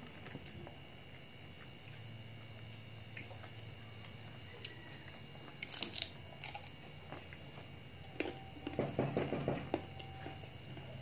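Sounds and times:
chewing with soft crunches: 0.0 - 11.0
crunchy bite into mango: 0.4 - 8.5.

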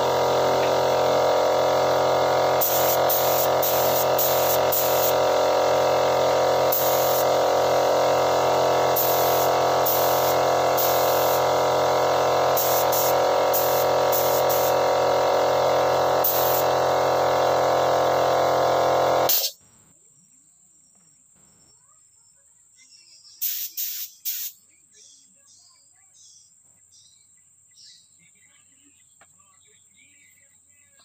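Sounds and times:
air compressor running: 0.0 - 19.6
spray gun hissing bursts: 0.0 - 19.6, 23.4 - 24.5.

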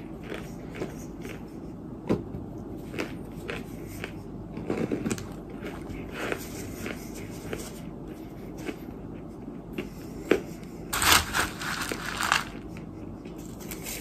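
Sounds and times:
chewing and crunching clay: 0.0 - 1.9, 2.6 - 14.0.

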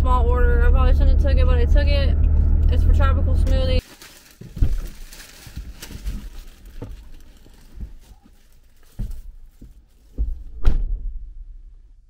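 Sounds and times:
thumps inside a car: 6.7 - 10.8.

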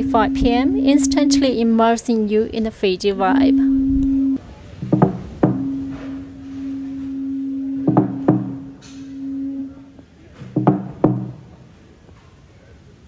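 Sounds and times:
low horn-like tone: 0.0 - 4.4, 5.4 - 11.4
slit log drum beats: 3.6 - 9.9, 10.5 - 11.4.

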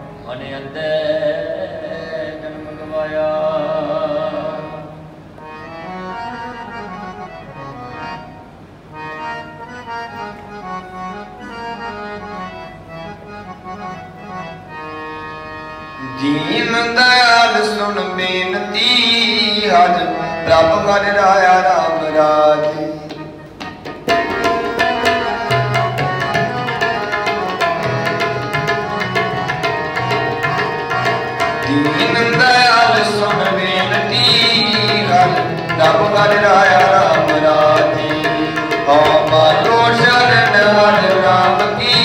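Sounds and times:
harmonium melody: 0.0 - 42.0
tabla fast strokes: 23.1 - 42.0.

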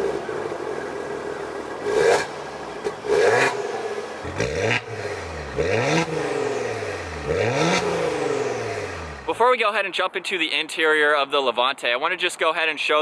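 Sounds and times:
car engine revving: 0.0 - 9.4.

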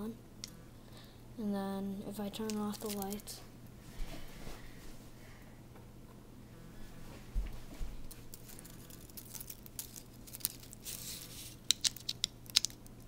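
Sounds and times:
tin foil crinkling: 2.4 - 3.4, 8.0 - 13.0.

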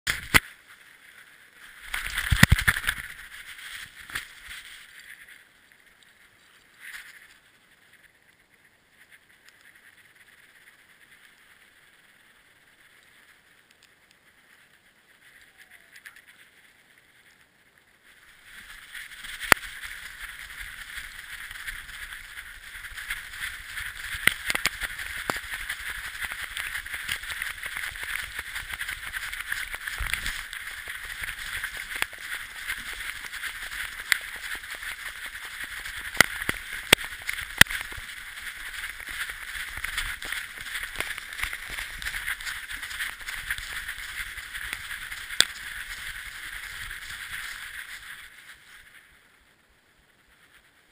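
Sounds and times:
dog running with harness rubbing: 18.1 - 49.2
sharp clicks: 23.8 - 46.1.

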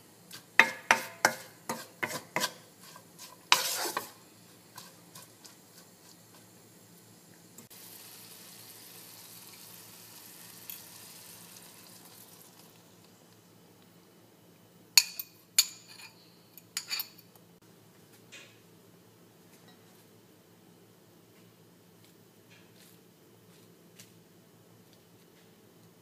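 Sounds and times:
greens sizzling in a frying pan: 0.3 - 13.2
kitchenware clinking against pan: 0.6 - 2.6, 15.0 - 17.3.

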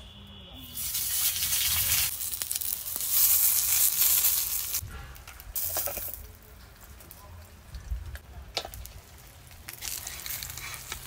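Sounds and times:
fish parcels sizzling on hot pan: 0.8 - 4.8, 8.8 - 11.0.

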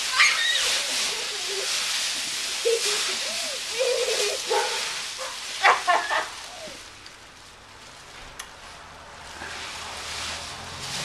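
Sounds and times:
people crying and squealing: 0.0 - 4.5
dry leaves rustling: 0.0 - 11.0.

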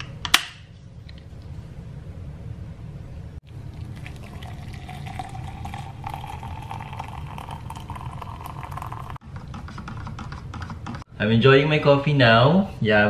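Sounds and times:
liquid pouring into cup: 3.4 - 9.2.

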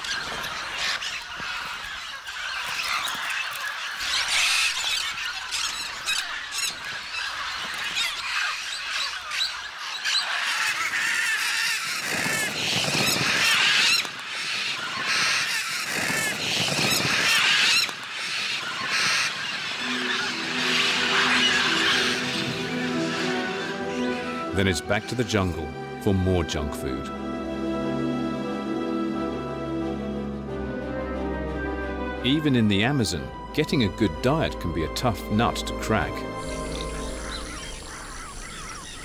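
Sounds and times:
macaws squawking and screeching: 0.0 - 25.7, 35.9 - 39.0
music: 19.8 - 39.0.

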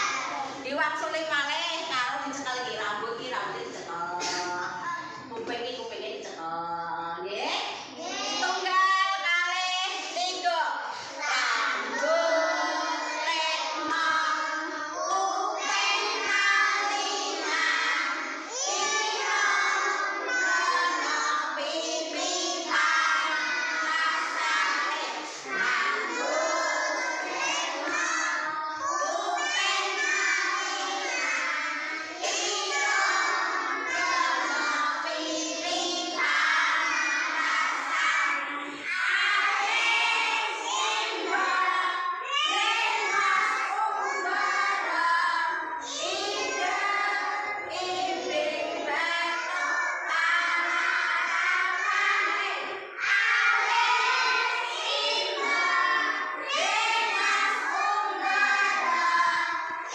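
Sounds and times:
children singing in unison: 0.0 - 0.6, 7.8 - 8.7, 10.9 - 59.9.

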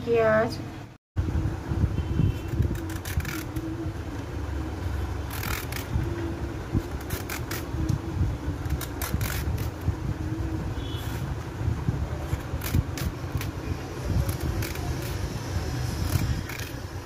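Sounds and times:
vegetable peeler scraping gourd: 2.4 - 3.8, 5.2 - 6.2, 6.8 - 8.0, 8.6 - 9.9, 12.2 - 17.0.

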